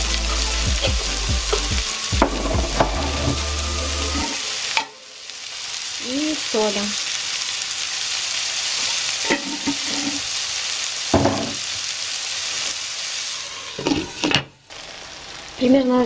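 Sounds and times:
food sizzling in a wok: 0.0 - 16.0
glass lid clattering on pan: 9.3 - 10.1.

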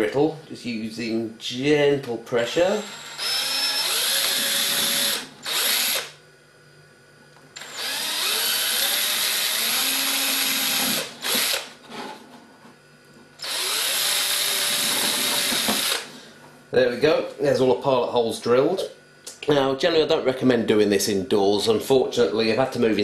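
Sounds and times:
cordless drill boring through plastic: 2.8 - 6.2, 7.6 - 11.7, 13.4 - 16.1.

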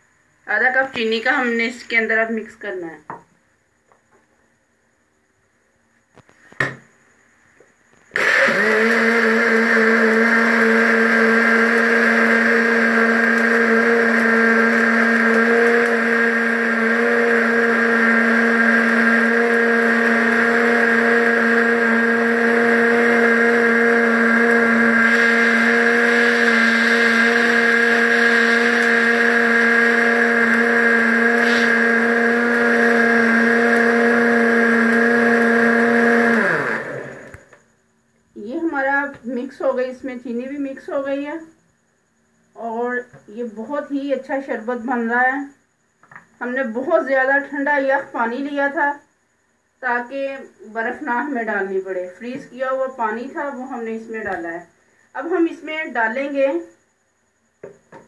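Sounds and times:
electric blender running: 8.2 - 37.6.

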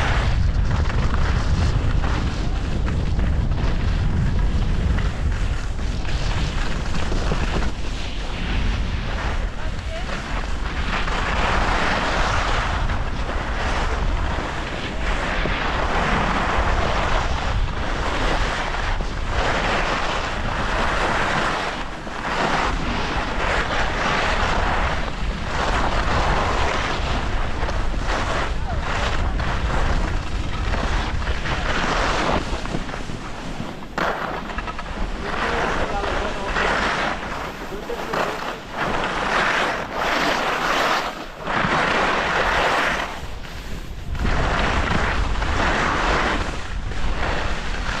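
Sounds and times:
skis scraping on snow: 0.0 - 48.0
wind rumble on microphone: 0.0 - 48.0.

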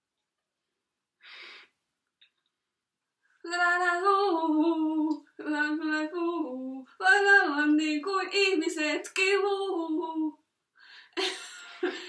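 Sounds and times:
woman singing unaccompanied: 3.4 - 10.4.

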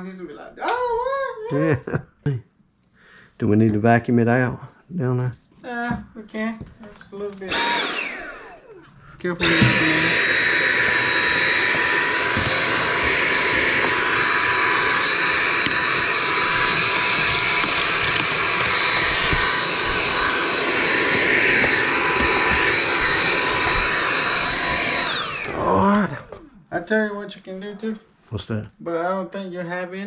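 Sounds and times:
vacuum cleaner running: 7.4 - 26.6.

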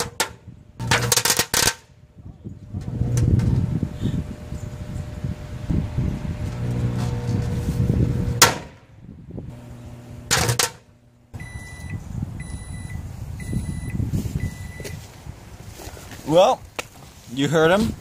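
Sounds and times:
sharp bangs: 0.0 - 1.9, 8.2 - 10.9
microwave oven humming: 2.8 - 8.5, 9.4 - 14.8
microwave beeps: 11.4 - 15.0.

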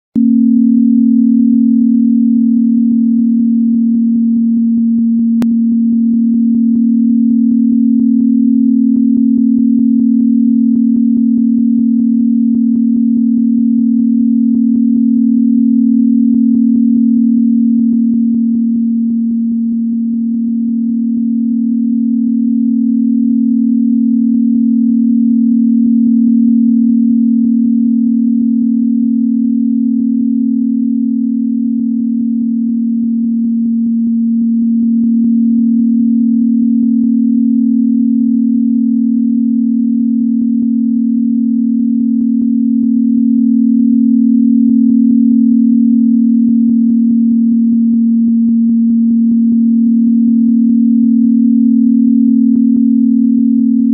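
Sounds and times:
low pure tone: 0.0 - 53.9
faint low background haze: 0.2 - 53.9.

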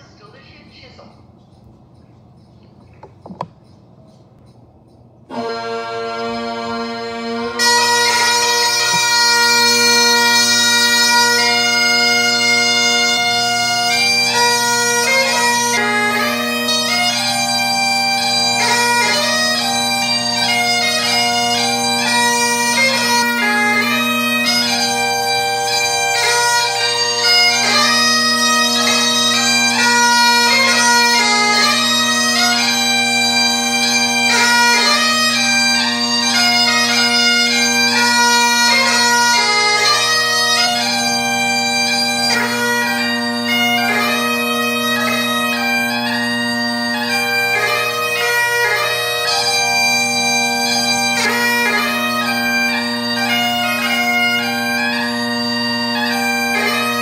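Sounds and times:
bagpipe drones: 5.2 - 57.0
bagpipe march melody: 5.2 - 57.0.

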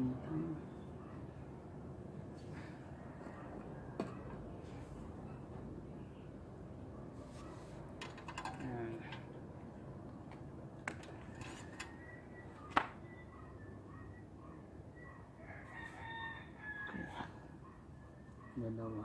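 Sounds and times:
rooster crowing: 15.4 - 17.6.

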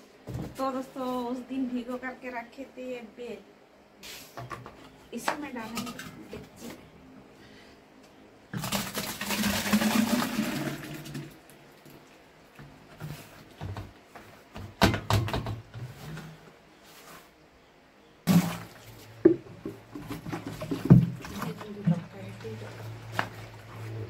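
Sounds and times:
fruit mash gushing into pot: 8.6 - 11.4, 18.3 - 23.9.

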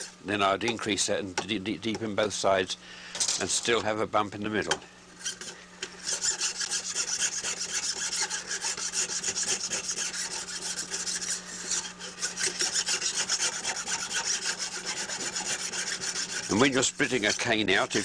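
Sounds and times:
file rasping on bamboo: 5.2 - 18.0.

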